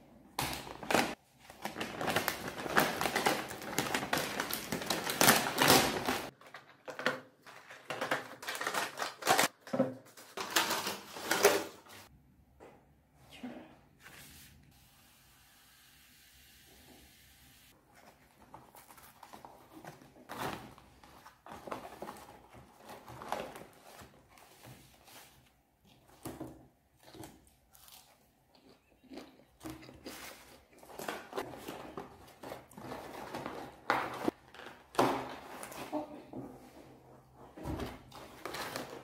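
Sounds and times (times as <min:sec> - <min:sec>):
paper bags and boxes rustling: 0:00.4 - 0:12.1, 0:17.8 - 0:26.6, 0:30.0 - 0:39.0.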